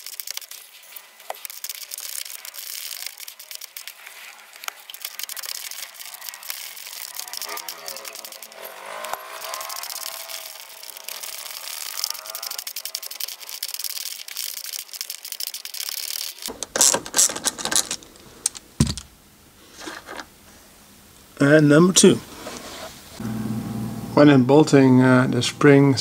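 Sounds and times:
ratchet wrench clicking: 5.0 - 16.6
metal tools clinking: 16.5 - 19.0.

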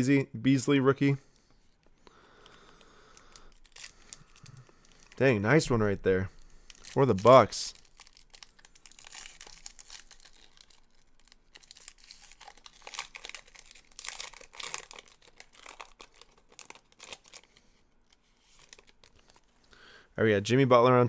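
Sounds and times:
card wrappers rustling and crinkling: 1.7 - 19.7.

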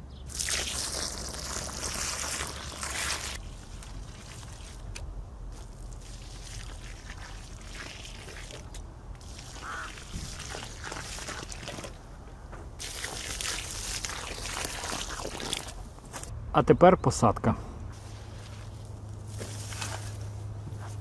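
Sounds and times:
water pouring into soil: 0.3 - 5.0, 5.6 - 12.0, 12.8 - 16.3.

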